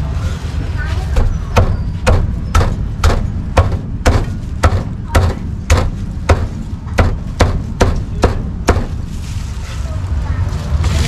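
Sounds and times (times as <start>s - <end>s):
cleaver chopping on wooden block: 1.2s - 8.9s.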